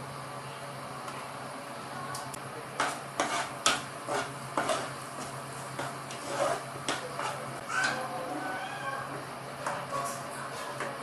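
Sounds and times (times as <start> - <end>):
steel ladle scraping a pan: 2.8 - 5.0, 5.8 - 7.4.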